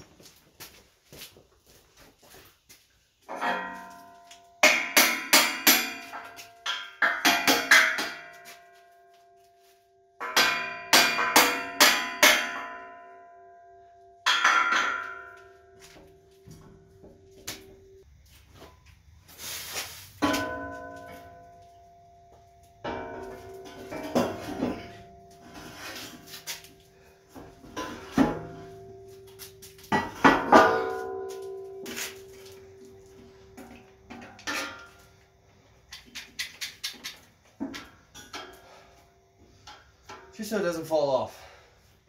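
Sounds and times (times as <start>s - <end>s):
hammer striking steel: 3.3s - 8.7s, 10.2s - 13.2s, 14.2s - 15.6s.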